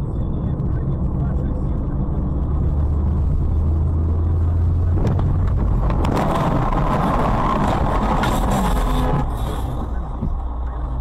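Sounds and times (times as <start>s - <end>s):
car road and engine drone: 0.0s - 11.0s
rushing scraping noise: 4.8s - 10.5s.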